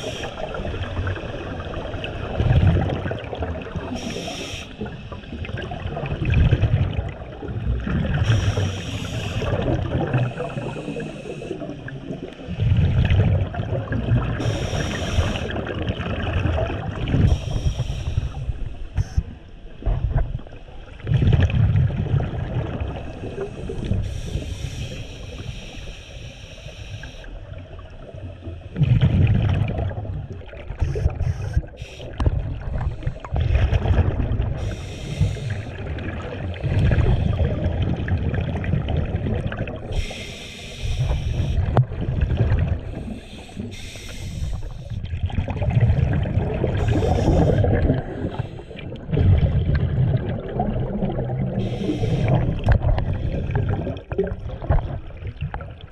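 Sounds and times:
regulator inhale hiss: 0:00.0 - 0:00.6, 0:03.9 - 0:05.3, 0:08.2 - 0:09.6, 0:10.2 - 0:11.9, 0:14.4 - 0:15.6, 0:17.2 - 0:19.4, 0:23.0 - 0:27.6, 0:31.0 - 0:33.4, 0:34.6 - 0:35.9, 0:39.9 - 0:41.7, 0:42.8 - 0:45.1, 0:46.7 - 0:49.0, 0:51.6 - 0:52.4
exhaled bubbles burbling: 0:00.0 - 0:24.4, 0:27.4 - 0:55.9.

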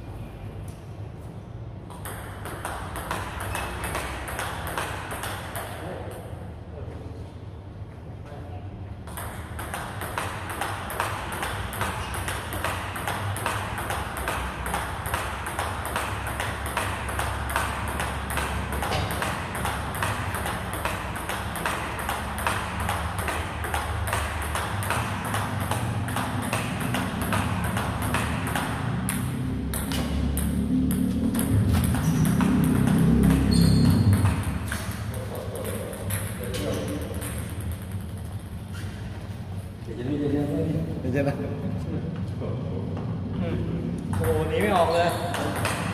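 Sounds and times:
table tennis ball clicks: 0:01.9 - 0:06.3, 0:09.1 - 0:38.6.

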